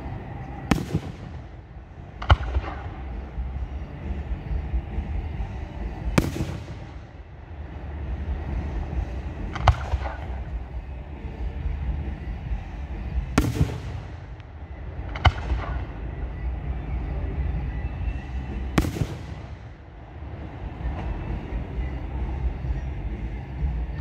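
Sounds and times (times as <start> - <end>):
low rumble: 0.0 - 24.0
firework bangs echoing: 0.7 - 4.2, 5.0 - 10.8, 13.2 - 16.2, 18.0 - 19.8.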